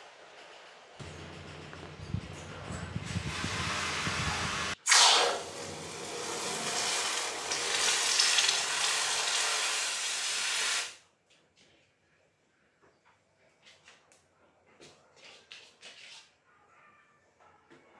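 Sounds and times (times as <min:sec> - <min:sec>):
hot steel hissing in water: 0:03.3 - 0:11.0.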